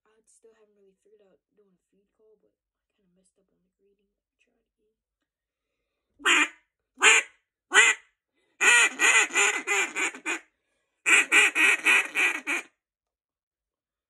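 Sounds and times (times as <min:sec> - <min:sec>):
duck call quacks: 0:06.2 - 0:08.0, 0:08.6 - 0:10.4, 0:11.1 - 0:12.7.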